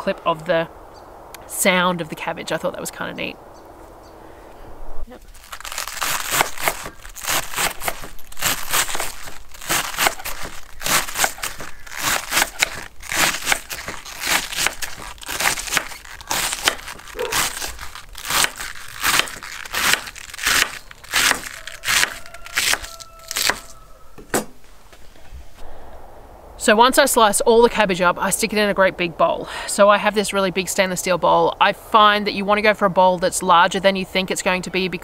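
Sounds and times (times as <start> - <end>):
knife slicing cabbage on board: 6.0 - 23.8.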